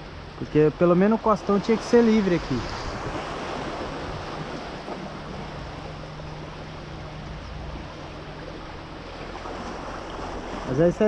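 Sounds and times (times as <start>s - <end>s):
surf washing on rocks: 0.0s - 11.0s.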